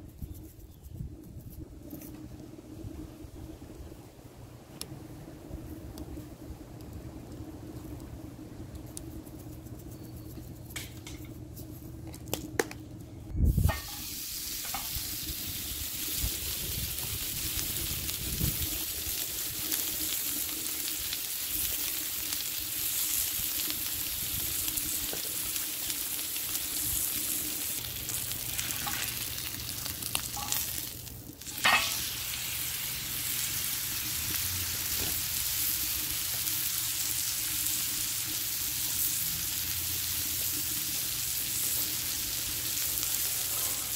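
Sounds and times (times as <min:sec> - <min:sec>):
light clicks of seasoning: 0:05.8 - 0:13.1, 0:13.7 - 0:43.9
steak sizzling on griddle: 0:13.6 - 0:43.9
steak thump on griddle: 0:13.7 - 0:14.9, 0:31.5 - 0:32.0.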